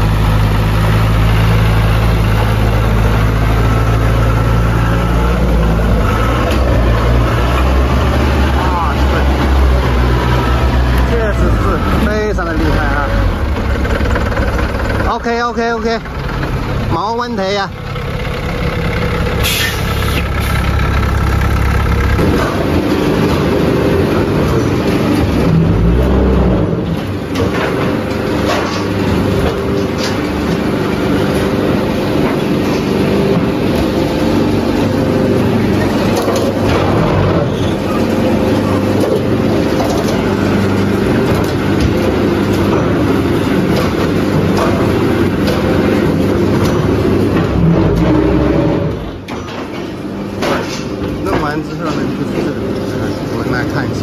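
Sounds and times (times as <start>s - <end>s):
brick-making machine drone: 0.0s - 54.0s
forklift engine under load: 0.0s - 54.0s
sharp mechanical knocks: 38.9s - 52.6s.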